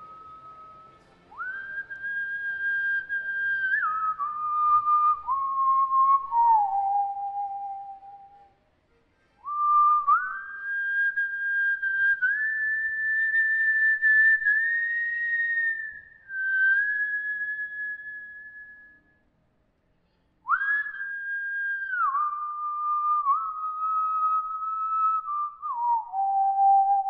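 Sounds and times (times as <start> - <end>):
whistle-like solo melody: 0.0 - 8.6, 9.4 - 19.3, 20.5 - 27.0.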